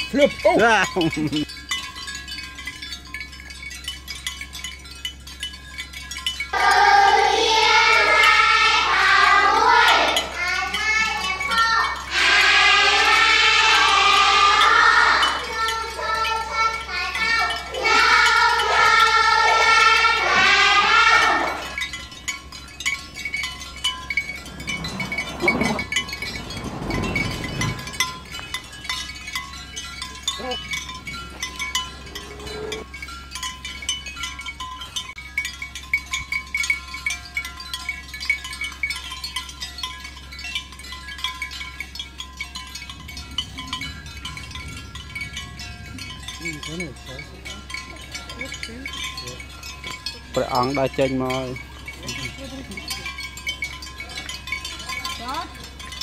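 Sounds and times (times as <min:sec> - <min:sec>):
tinkling chime-like music: 0:00.0 - 0:56.0
children reading aloud in chorus: 0:06.5 - 0:21.8.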